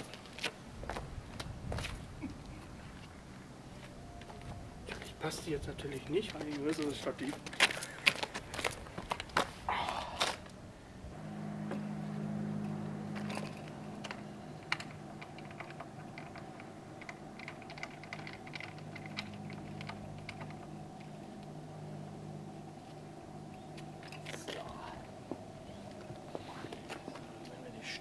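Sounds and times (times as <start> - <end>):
steady low hum: 0.0 - 28.0
small handling clicks: 13.3 - 21.5.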